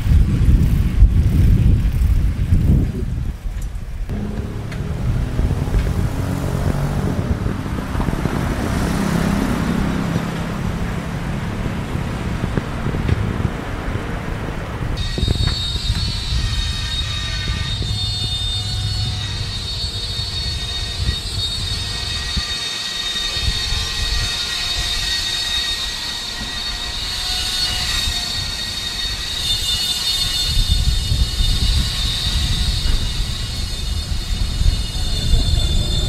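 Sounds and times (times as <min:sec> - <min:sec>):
vehicle engine rumbling: 0:00.0 - 0:22.5, 0:30.5 - 0:36.0
high whining tones: 0:04.0 - 0:13.1, 0:14.8 - 0:36.0.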